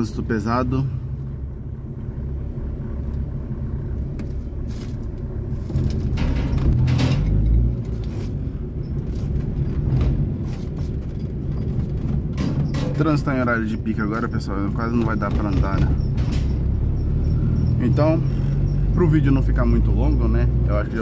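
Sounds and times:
car engine running: 0.0s - 21.0s
road rumble inside car: 0.0s - 21.0s
light rattles and clicks: 4.0s - 16.7s.

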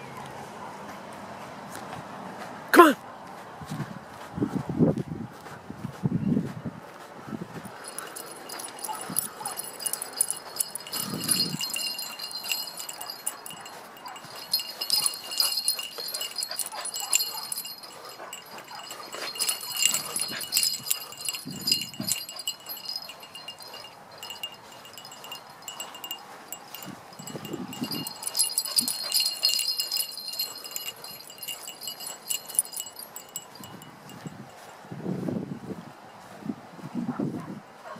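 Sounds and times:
light metallic jingling: 7.5s - 34.9s.

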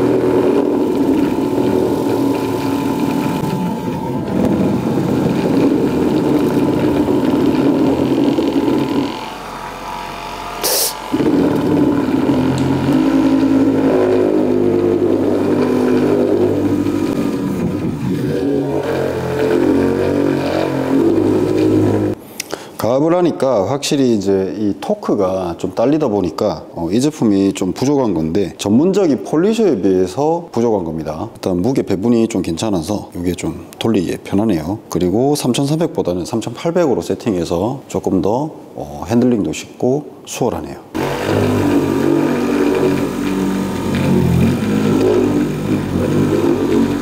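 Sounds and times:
car polisher running: 0.0s - 22.2s, 41.0s - 47.0s.

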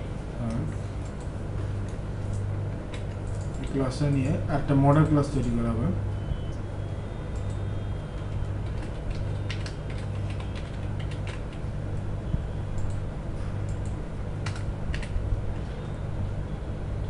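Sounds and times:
steady low hum: 0.0s - 17.0s
keyboard keys clicking: 2.3s - 4.2s, 8.2s - 11.6s, 13.7s - 15.2s.

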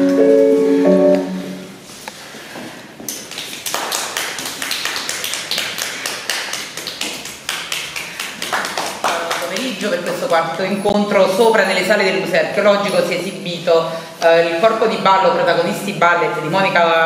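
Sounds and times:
music held notes: 0.0s - 1.9s
audience applauding: 3.2s - 9.8s.

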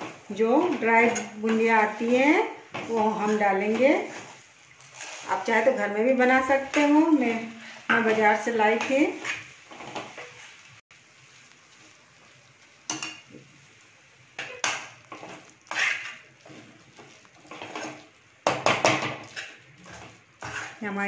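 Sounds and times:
spatula scraping a metal pot: 0.6s - 5.7s, 8.0s - 10.5s, 14.4s - 21.0s.

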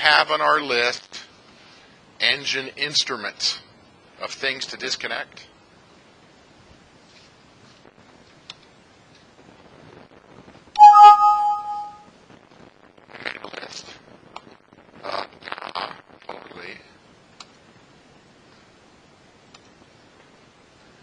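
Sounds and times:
bright chime: 10.8s - 12.0s.

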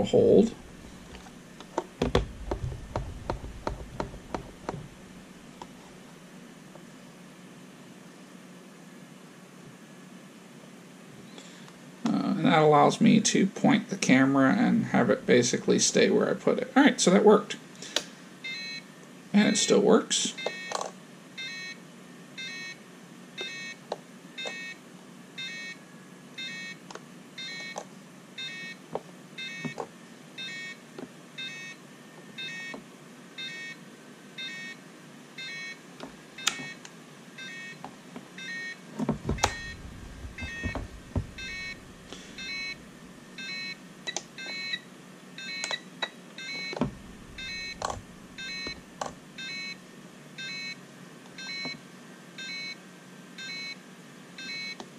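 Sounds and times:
knocks on plastic case: 2.0s - 4.9s, 39.0s - 42.0s
short high warning beeps: 39.4s - 43.8s, 46.4s - 48.8s.

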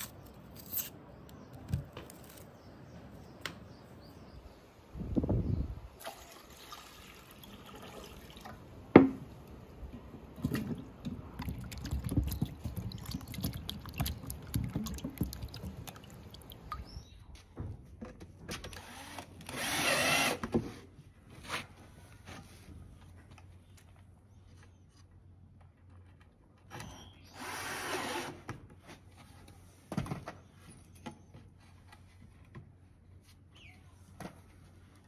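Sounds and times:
water sloshing in a bowl: 10.4s - 17.1s.

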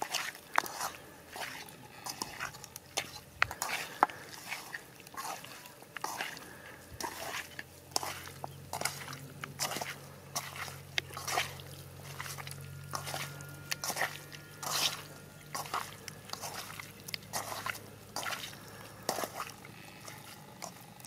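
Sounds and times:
wet squelching of hand mixing meat: 0.0s - 21.0s.

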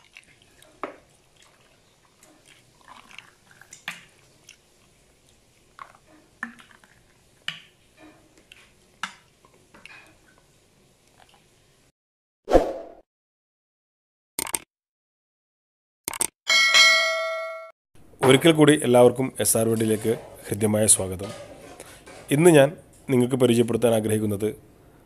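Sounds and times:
juice pouring: 0.0s - 7.2s.

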